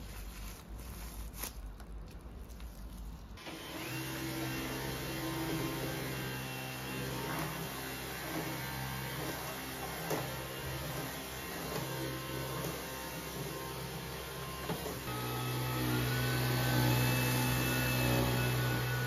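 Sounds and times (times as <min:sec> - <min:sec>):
plastic film crinkling: 0:00.0 - 0:03.4
cordless vacuum running: 0:03.4 - 0:19.0.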